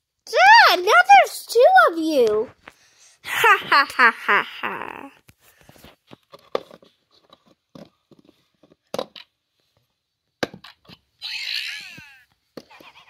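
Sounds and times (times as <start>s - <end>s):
plastic bricks knocking on wood: 6.1s - 9.4s, 10.4s - 11.1s.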